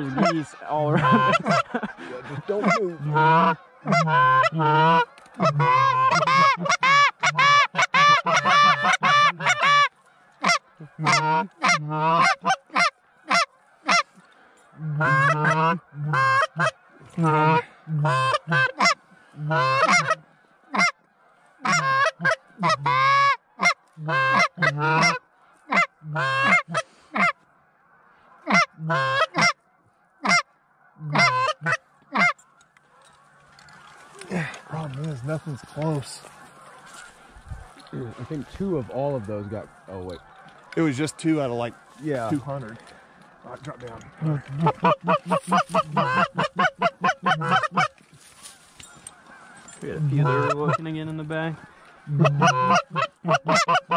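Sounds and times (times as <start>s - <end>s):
goose honking: 0.0s - 53.9s.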